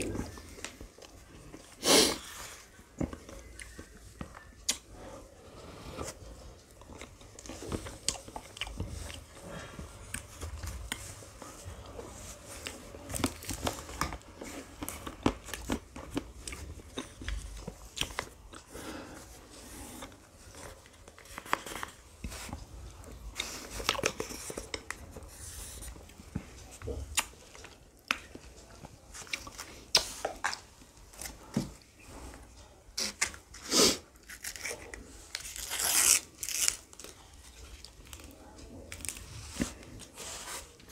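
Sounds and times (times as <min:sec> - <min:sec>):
person eating ice cream: 0:00.0 - 0:21.2.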